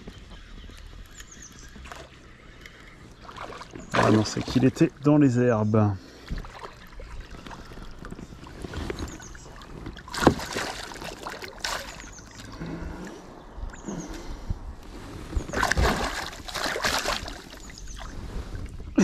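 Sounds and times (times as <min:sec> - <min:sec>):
faint water noises: 0:01.0 - 0:19.0
fish handling noises: 0:06.1 - 0:13.2, 0:15.4 - 0:18.1.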